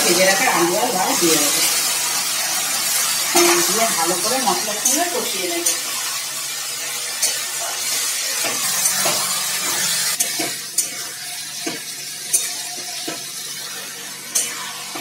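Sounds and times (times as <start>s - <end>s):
vegetables sizzling in oil: 0.0s - 15.0s
metal spatula scraping a wok: 6.8s - 15.0s.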